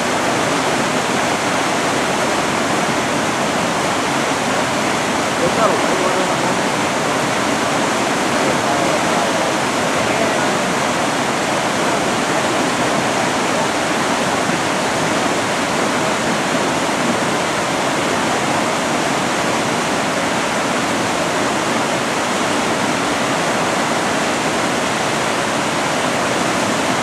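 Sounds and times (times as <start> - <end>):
river rapids rushing: 0.0 - 27.0.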